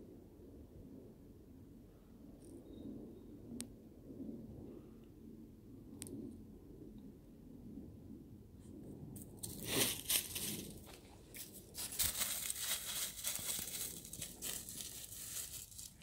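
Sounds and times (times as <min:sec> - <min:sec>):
crunching and rustling: 0:09.2 - 0:16.0.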